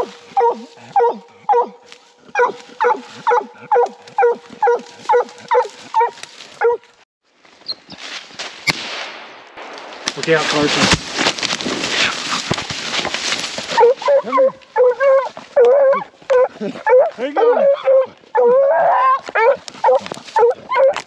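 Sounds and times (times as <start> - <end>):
dog barking: 0.0 - 6.8, 13.8 - 21.0
rustling through dry leaves: 1.8 - 8.7, 9.8 - 17.3
sharp snap of branch: 8.4 - 13.6.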